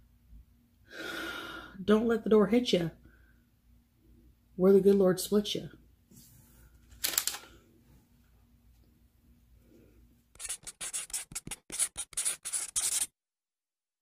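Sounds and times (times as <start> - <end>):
pen scratching on paper: 10.4 - 13.1.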